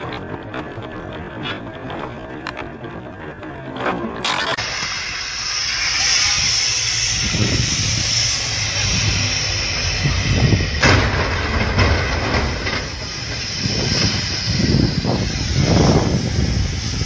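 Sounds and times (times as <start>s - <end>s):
vehicles rumbling on highway: 0.0s - 17.0s
wind hissing: 4.6s - 17.0s
sharp crash bang: 10.7s - 13.8s.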